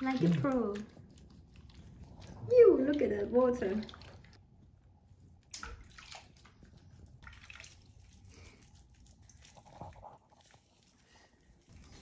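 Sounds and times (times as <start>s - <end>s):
water splashing in a sink: 0.0s - 4.6s, 5.4s - 10.1s.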